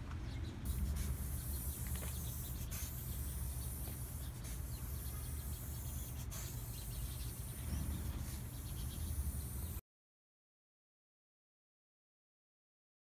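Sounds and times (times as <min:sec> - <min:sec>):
spray paint can hissing: 0:00.6 - 0:09.8.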